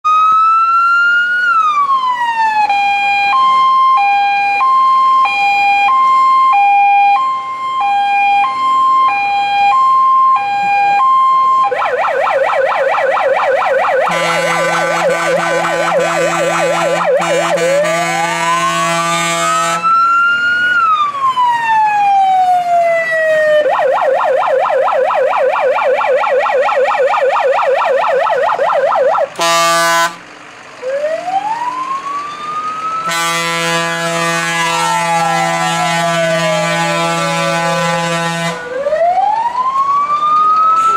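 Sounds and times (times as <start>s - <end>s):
fire engine electronic siren: 0.0s - 40.9s
steady low horn tone: 13.8s - 19.9s, 29.0s - 30.3s, 33.0s - 38.8s.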